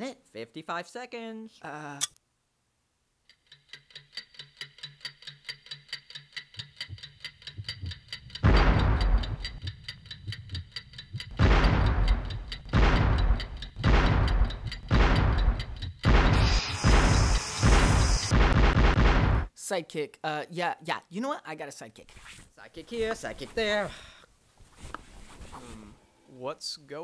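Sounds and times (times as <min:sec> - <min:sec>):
clock ticking rapidly: 0:03.3 - 0:19.5
low pulsing tone: 0:06.8 - 0:18.3
heavy deep booms: 0:08.4 - 0:09.7, 0:11.2 - 0:19.5.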